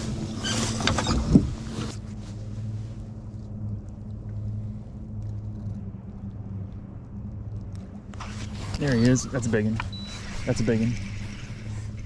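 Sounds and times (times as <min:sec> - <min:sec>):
electric motor humming: 0:08.2 - 0:12.0.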